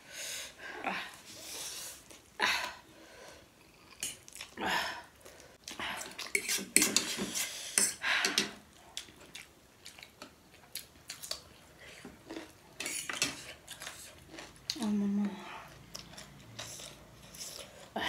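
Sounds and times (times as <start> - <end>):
breathing: 0.0 - 0.7, 2.9 - 3.5.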